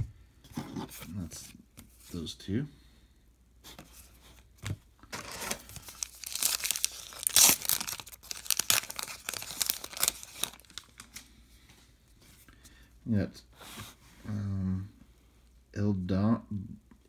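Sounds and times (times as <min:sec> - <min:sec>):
wrapper tearing and crinkling: 0:05.2 - 0:11.2.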